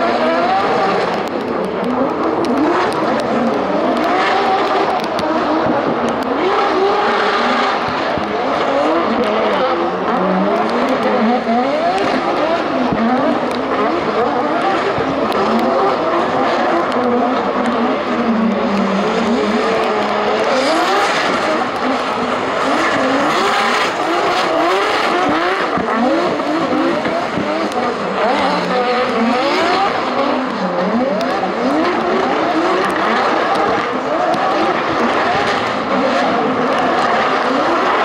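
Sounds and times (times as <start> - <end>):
car engines revving: 0.0 - 38.0.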